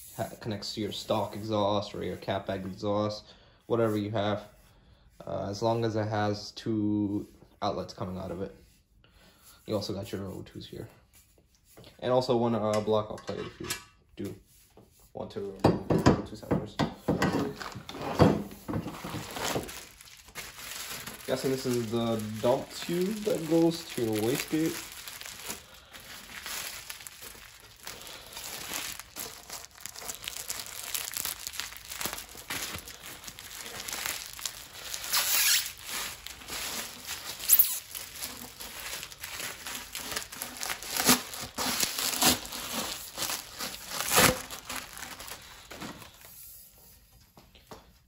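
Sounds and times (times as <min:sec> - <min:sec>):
plastic wrapping crinkling: 0:17.4 - 0:46.4.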